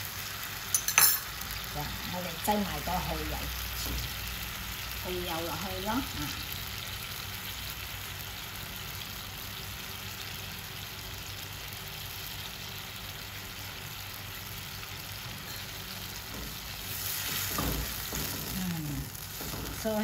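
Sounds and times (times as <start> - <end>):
sauce sizzling in a frying pan: 0.0 - 20.0.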